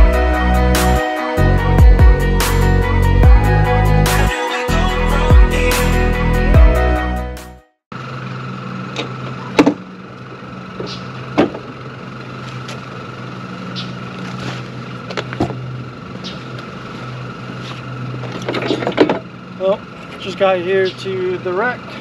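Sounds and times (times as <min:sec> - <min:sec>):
background music: 0:00.0 - 0:07.7
vehicle engine idling: 0:07.9 - 0:22.0.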